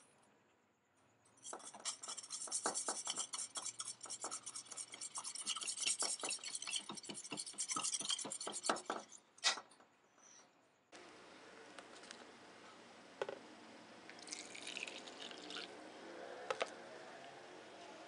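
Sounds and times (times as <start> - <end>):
whisk scraping and clinking in metal bowl: 1.4 - 9.2.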